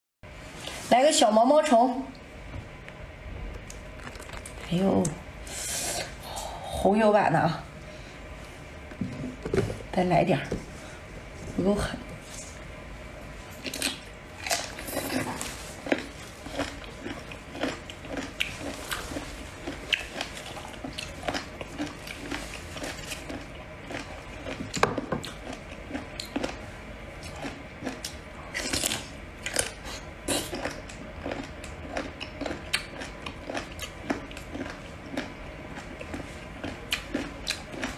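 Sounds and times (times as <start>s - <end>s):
person chewing: 3.6s - 4.7s, 13.6s - 26.6s, 27.2s - 37.9s.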